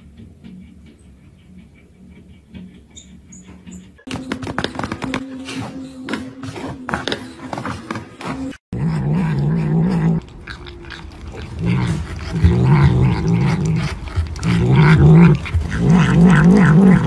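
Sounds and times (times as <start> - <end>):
cat growling: 8.8 - 17.0.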